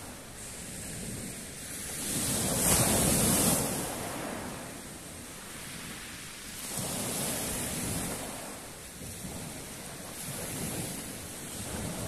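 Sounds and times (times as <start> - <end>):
waves breaking on pebble beach: 0.0 - 4.8.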